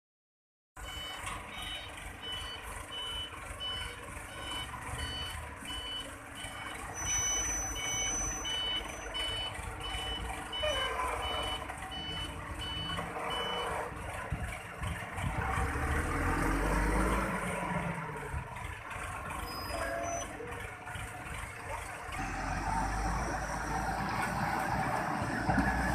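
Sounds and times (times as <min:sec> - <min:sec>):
reversing alarm beeping: 0:00.8 - 0:13.8
diesel engine running: 0:00.8 - 0:25.9.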